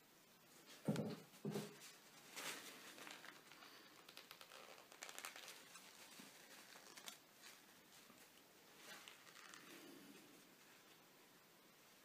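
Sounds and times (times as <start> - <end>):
hands rustling materials: 1.6 - 11.1.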